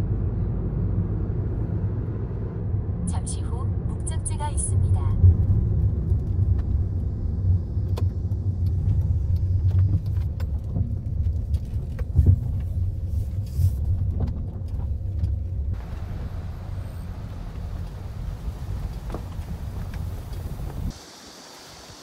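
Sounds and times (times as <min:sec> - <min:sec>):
car road and engine rumble: 0:00.0 - 0:22.0
wind hiss: 0:15.8 - 0:22.0.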